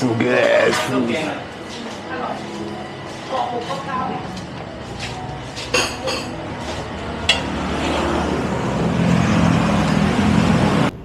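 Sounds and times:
steady background noise: 0.0 - 11.0
tableware clinking: 5.6 - 7.6.

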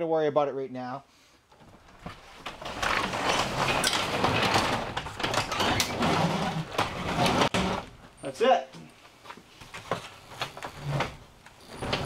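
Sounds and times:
garage door rollers rumbling: 1.8 - 8.2, 10.2 - 12.0.

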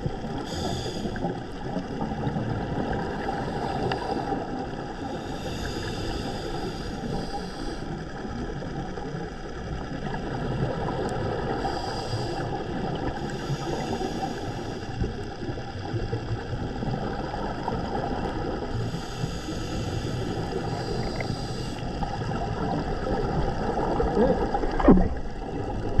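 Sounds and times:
scuba regulator bubbling: 0.0 - 26.0
underwater crackling hiss: 0.1 - 8.4, 10.9 - 23.2.

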